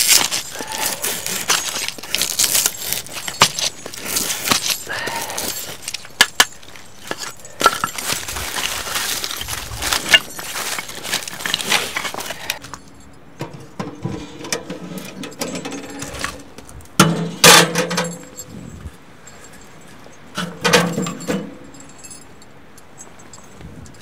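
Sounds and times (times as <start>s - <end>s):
knife shaving wood splinters: 0.0s - 12.6s
handling of wood pieces: 0.0s - 18.5s.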